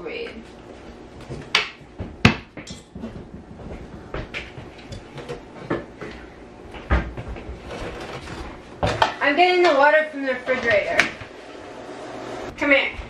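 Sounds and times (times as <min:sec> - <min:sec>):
kitchen knocks and clunks: 0:01.2 - 0:06.0, 0:06.7 - 0:09.8.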